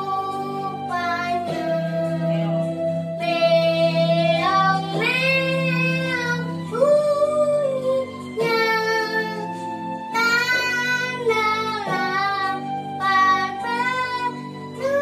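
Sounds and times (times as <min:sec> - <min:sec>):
electronic keyboard chords: 0:00.0 - 0:15.0
girl singing: 0:00.0 - 0:15.0.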